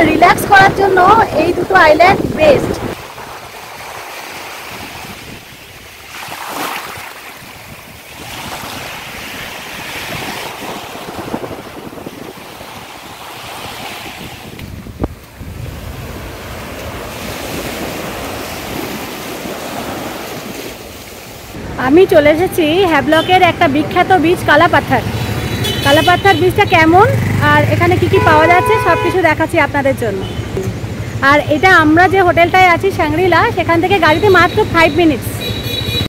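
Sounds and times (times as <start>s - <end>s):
wind rumbling on microphone: 0.0s - 21.8s
waves breaking on sandy shore: 0.0s - 25.4s.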